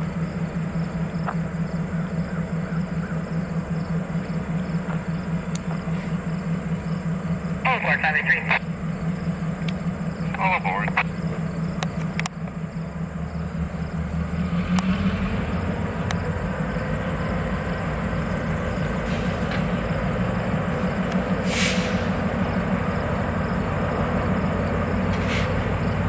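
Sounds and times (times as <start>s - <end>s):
diesel train rumbling by: 0.0s - 26.0s
brief hiss: 21.5s - 22.1s.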